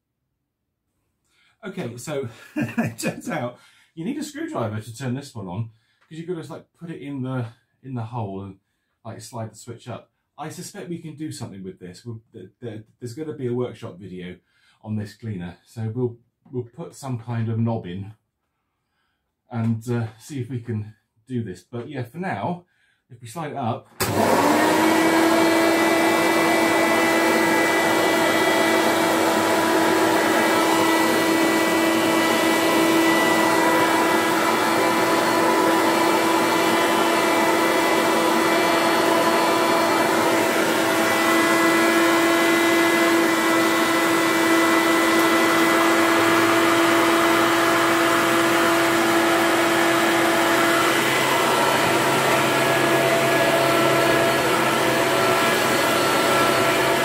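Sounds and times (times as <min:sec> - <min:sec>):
vacuum cleaner running: 0:24.0 - 0:57.0.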